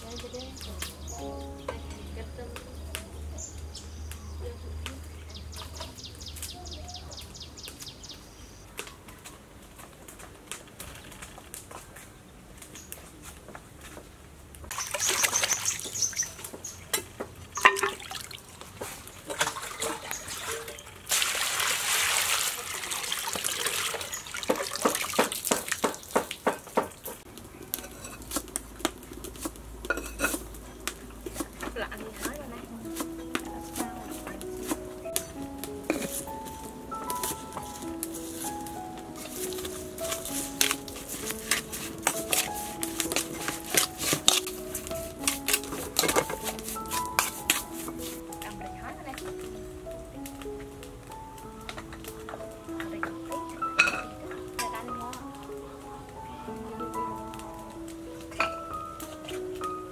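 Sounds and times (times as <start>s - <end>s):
hands splashing water: 14.7s - 16.6s, 17.6s - 27.2s
water slaps: 14.7s - 27.2s.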